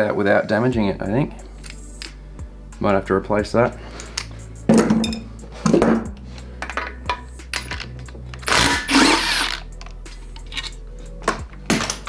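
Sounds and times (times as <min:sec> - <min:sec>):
metal tools clinking: 0:06.6 - 0:10.8
cordless drill running: 0:08.5 - 0:09.6.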